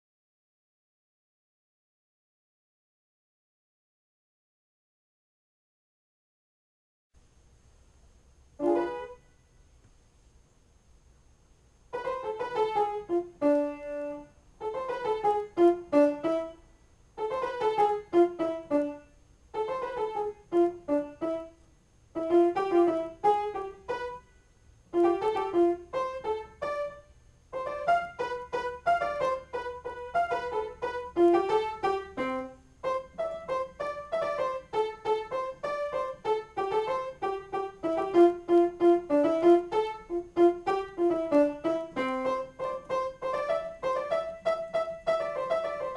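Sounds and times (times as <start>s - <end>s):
solo piano: 8.6s - 9.4s, 11.9s - 45.9s.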